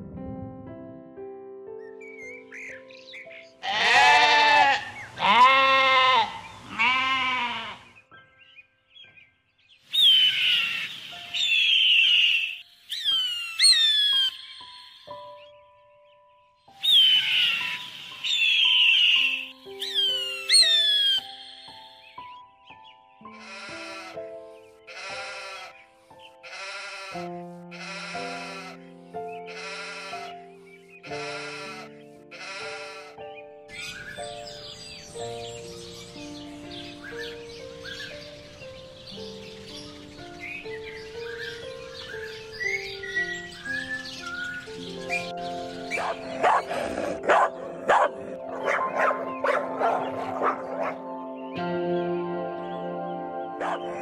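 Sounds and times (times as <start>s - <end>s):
background music of held chords: 0.0s - 54.0s
bird crying: 2.0s - 8.1s, 9.9s - 15.6s, 16.8s - 22.5s, 23.2s - 34.8s, 36.2s - 38.3s, 39.6s - 46.7s, 53.6s - 54.0s
goats bleating: 3.6s - 7.8s, 31.3s - 33.1s.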